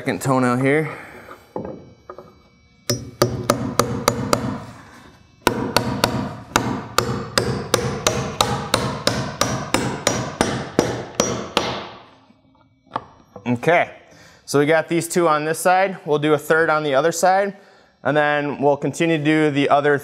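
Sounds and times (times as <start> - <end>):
hammer hitting nail into wood: 2.9 - 4.6, 5.4 - 12.0.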